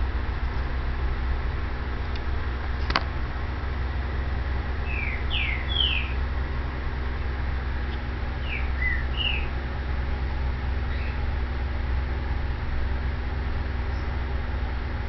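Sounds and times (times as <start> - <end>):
bird chirping: 4.8 - 6.2, 7.9 - 9.6, 10.8 - 11.3, 13.9 - 14.2.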